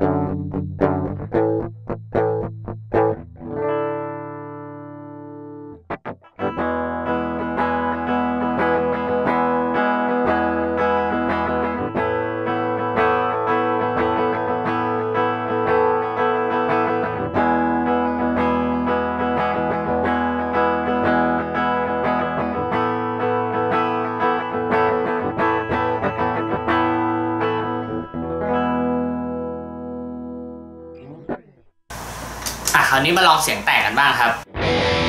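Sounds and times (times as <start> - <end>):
electric guitar picked notes and chords: 0.0 - 32.4, 34.4 - 35.0.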